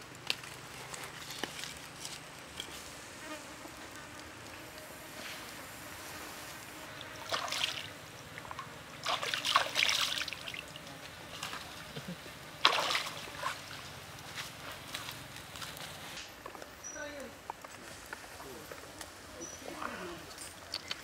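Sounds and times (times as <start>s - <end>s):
octopus sizzling on grill: 0.0s - 7.2s.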